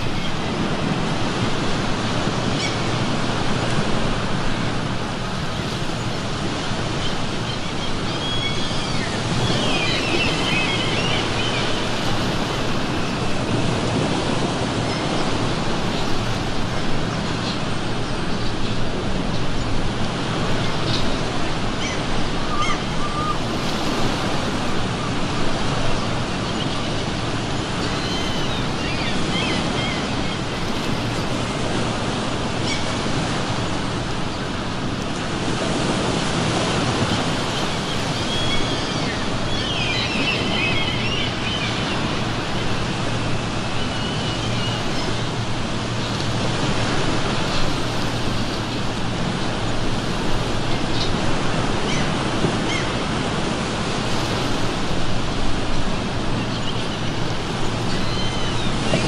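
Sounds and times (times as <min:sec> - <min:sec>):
ocean surf washing in: 0:00.0 - 0:59.0
seagulls calling: 0:06.6 - 0:16.2, 0:20.5 - 0:33.5, 0:36.4 - 0:53.9, 0:55.0 - 0:59.0.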